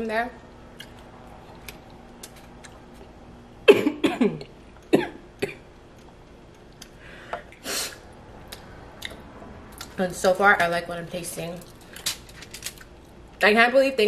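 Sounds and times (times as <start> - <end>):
close eating sounds: 0.6 - 3.4.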